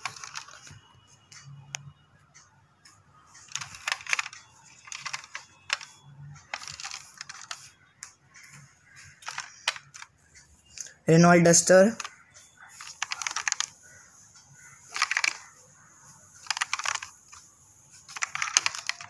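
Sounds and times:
plastic toy car clicks and rustles: 0:00.0 - 0:00.8, 0:03.4 - 0:07.8, 0:08.4 - 0:10.2, 0:11.8 - 0:14.0, 0:14.8 - 0:15.6, 0:16.3 - 0:19.0.

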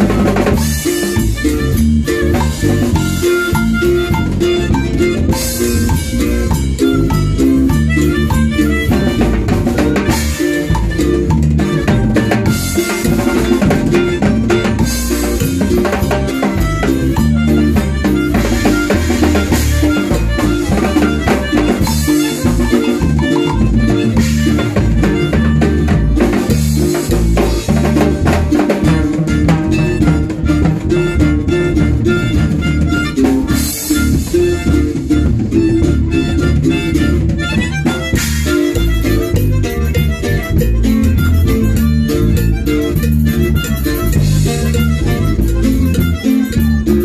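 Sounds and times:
band playing dance music: 0:00.0 - 0:47.0.

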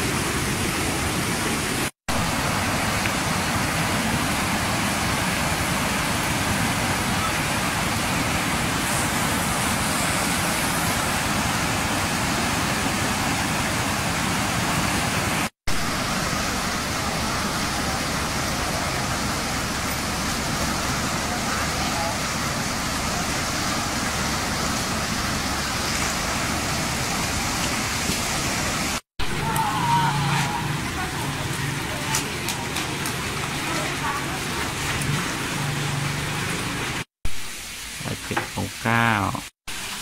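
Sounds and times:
flood water rushing: 0:00.0 - 0:40.0.

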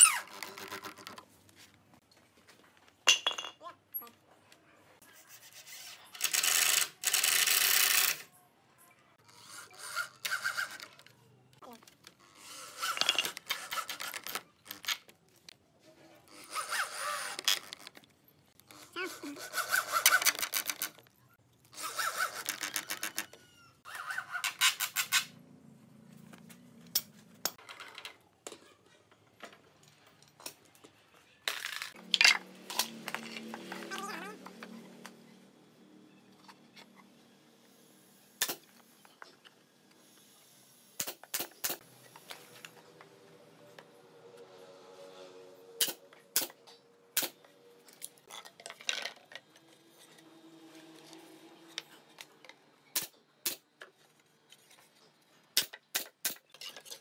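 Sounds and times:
electric drill driving screw: 0:16.3 - 0:17.9.

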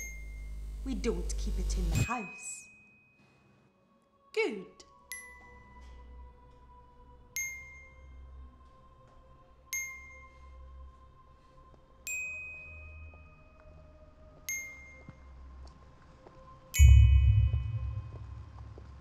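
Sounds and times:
bell-like chime notes: 0:16.8 - 0:18.6
faint held tone: 0:16.8 - 0:18.6.

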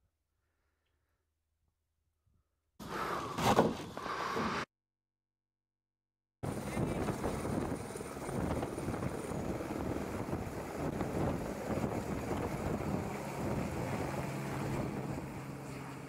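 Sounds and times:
helicopter rotor chop: 0:06.4 - 0:16.0.

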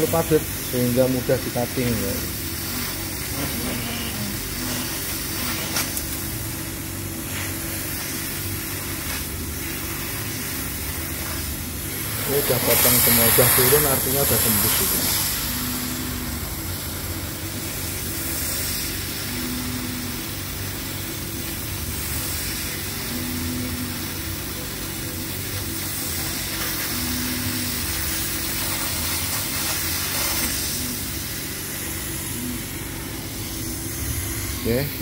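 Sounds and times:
laser cutter blowing hiss: 0:00.0 - 0:35.0.

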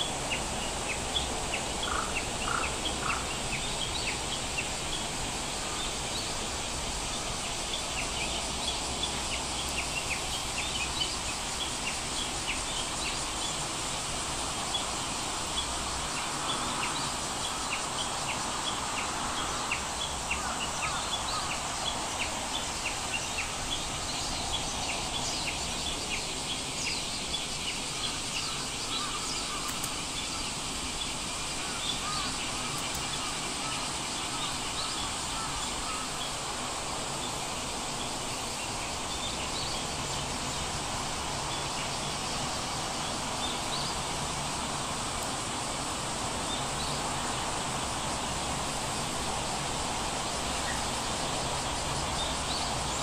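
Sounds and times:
steady background hiss: 0:00.0 - 0:53.0.

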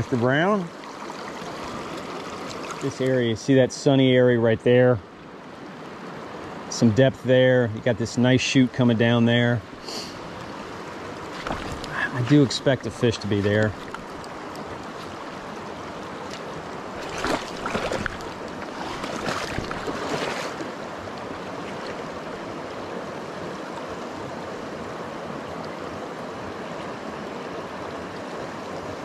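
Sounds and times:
creek water rushing over rocks: 0:00.0 - 0:04.5, 0:05.1 - 0:29.0
louder water whooshes: 0:16.9 - 0:20.9.

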